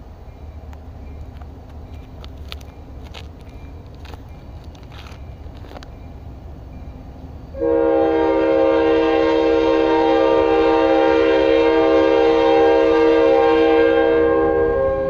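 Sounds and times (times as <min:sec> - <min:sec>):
train air horn blast: 0:07.6 - 0:15.0.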